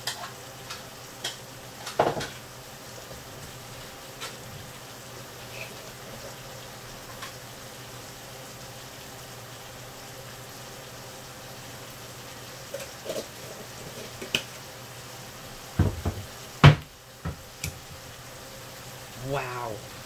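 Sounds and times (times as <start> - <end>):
meat sizzling in a pan: 0.0 - 20.0.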